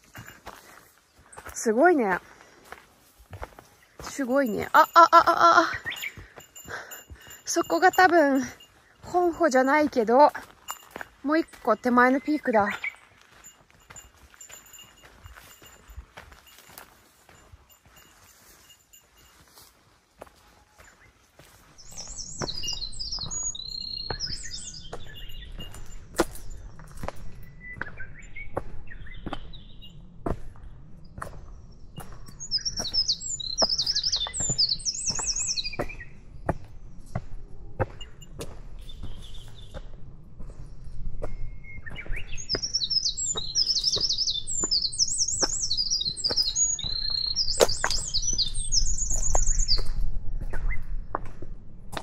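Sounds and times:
footsteps on stony trail: 0.0s - 52.0s
songbird trilling song: 3.3s - 51.2s.

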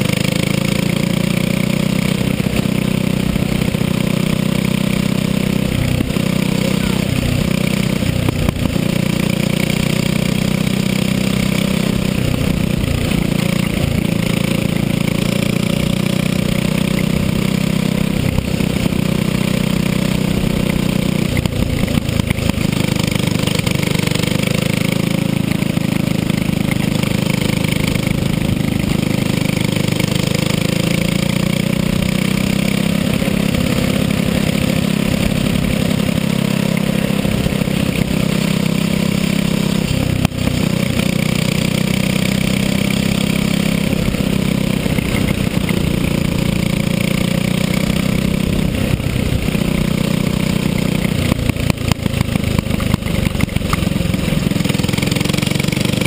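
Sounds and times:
go-kart engine running hard: 0.0s - 56.0s.

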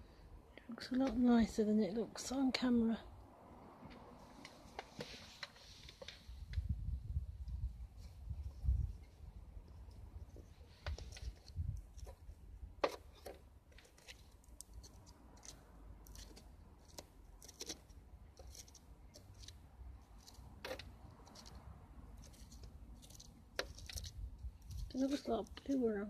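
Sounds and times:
embers crackling as stirred: 10.2s - 26.0s.

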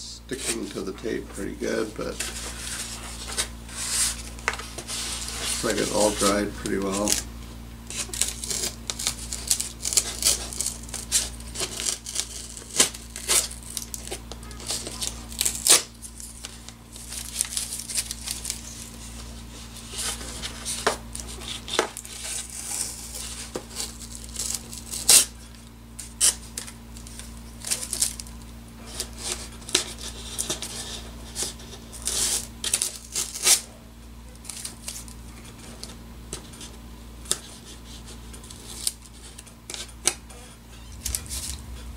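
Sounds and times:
tape being peeled off: 7.9s - 25.3s, 26.0s - 28.3s, 37.3s - 41.9s.

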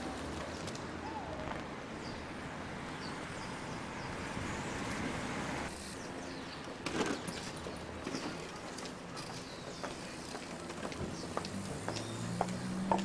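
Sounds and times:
traffic hum: 0.0s - 13.0s
birds chirping: 5.8s - 13.0s.

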